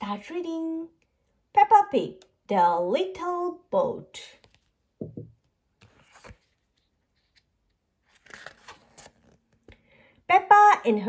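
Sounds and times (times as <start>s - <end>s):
book pages turning: 4.4s - 4.8s, 5.4s - 9.8s.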